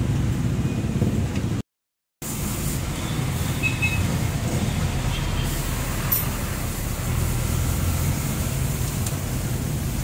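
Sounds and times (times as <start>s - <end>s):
vehicle engine rumbling: 2.2s - 10.0s.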